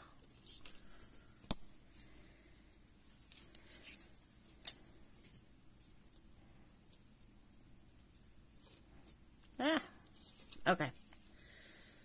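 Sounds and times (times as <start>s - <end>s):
rustling and scraping of tools: 0.2s - 7.3s.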